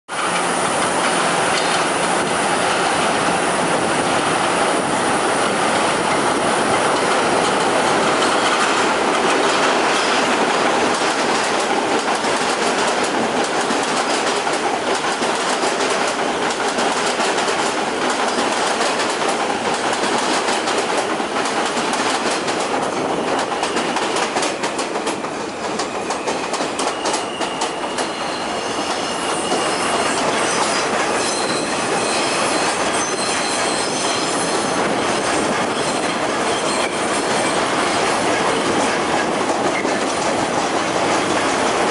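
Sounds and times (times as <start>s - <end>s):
train wheel and rail noise: 0.1s - 41.9s
high squealing of train brakes: 4.5s - 9.0s, 22.8s - 39.0s
wheels clicking over rail joints: 5.7s - 28.1s.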